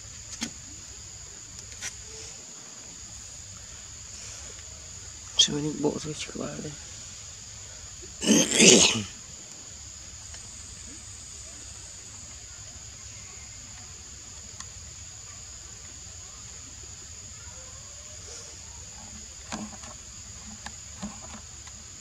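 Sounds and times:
clicks and rustles: 19.0 - 21.8.

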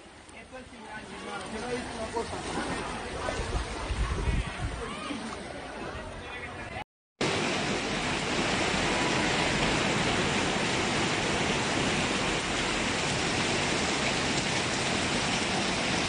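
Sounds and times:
heavy rain pouring: 7.2 - 16.0.

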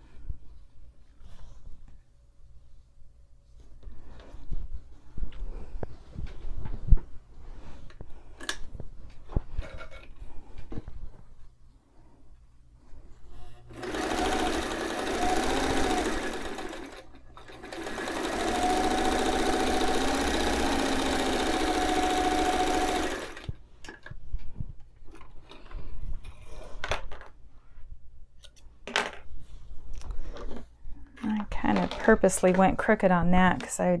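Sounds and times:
sewing machine stitching: 13.7 - 23.6.

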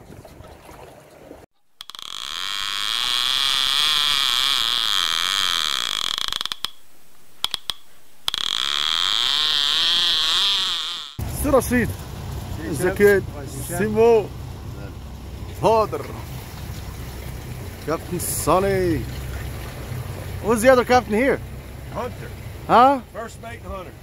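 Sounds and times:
mechanical ratcheting whir: 1.8 - 6.8, 7.4 - 11.2
sharp clicks: 5.4 - 9.3.

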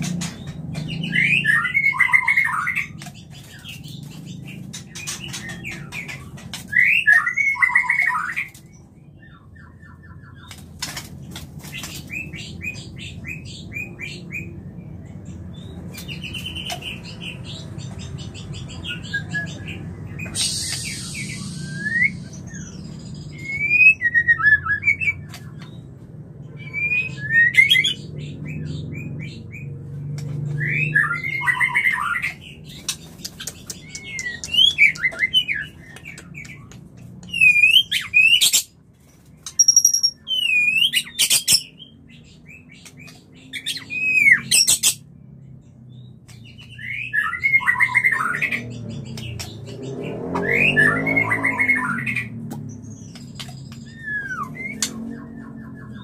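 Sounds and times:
bird singing fluty whistles: 20.2 - 25.2, 53.8 - 56.0.

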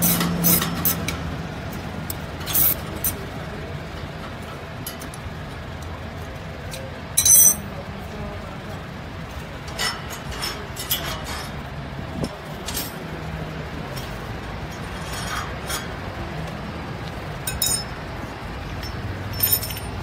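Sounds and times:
metallic clinks and clicks: 6.7 - 7.7, 17.4 - 18.0, 18.7 - 20.0.

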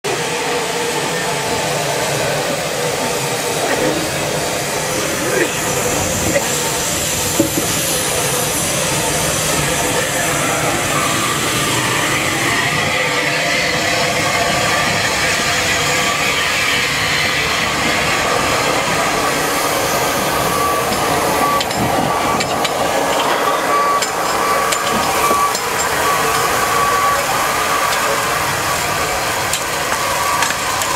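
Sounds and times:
hiss of escaping steam: 0.2 - 30.9.

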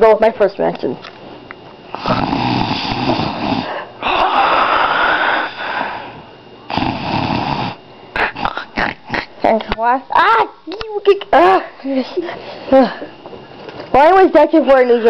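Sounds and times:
child imitating snoring: 2.0 - 5.7, 6.7 - 9.3.

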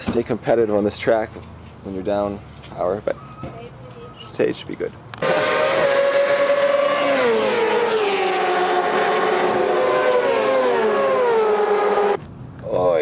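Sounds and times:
racing motorcycle engine revving: 5.2 - 12.2.

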